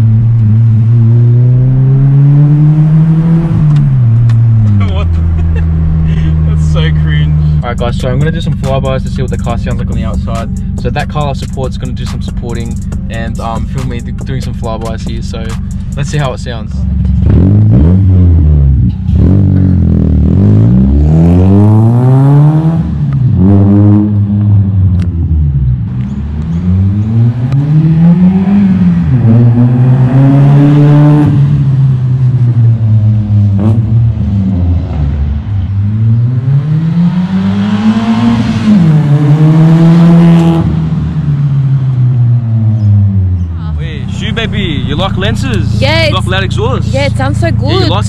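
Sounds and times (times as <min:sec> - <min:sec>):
car accelerating past: 0:26.0 - 0:32.6, 0:33.5 - 0:45.6.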